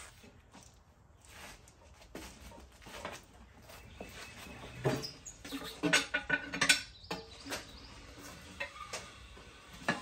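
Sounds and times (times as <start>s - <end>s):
metal bar clanking and scraping: 4.9s - 7.8s.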